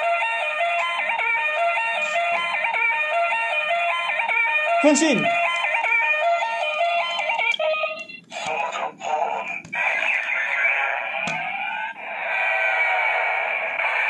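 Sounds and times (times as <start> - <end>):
toy belt electronic beeping melody: 0.0 - 8.3.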